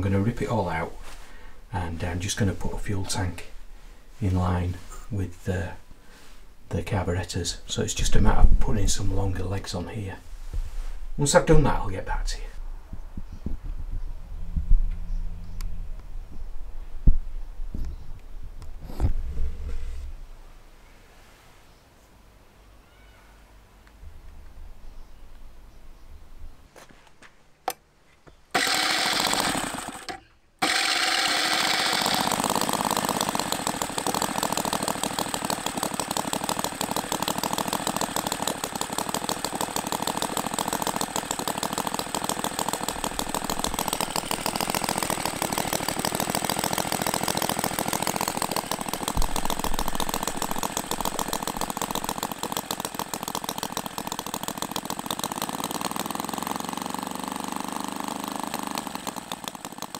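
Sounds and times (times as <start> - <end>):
electric starter cranking: 28.5 - 59.9
model engine running: 28.5 - 59.9.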